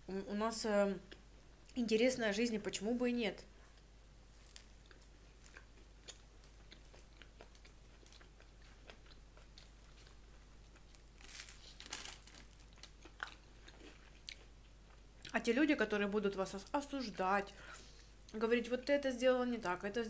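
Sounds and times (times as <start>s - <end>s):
chewing food: 4.2s - 15.4s.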